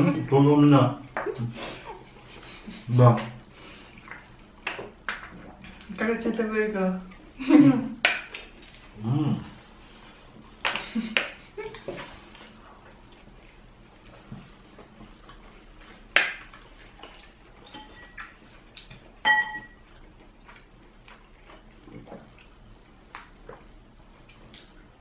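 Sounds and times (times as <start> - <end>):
crockery clinking: 17.6 - 18.2, 19.2 - 19.8.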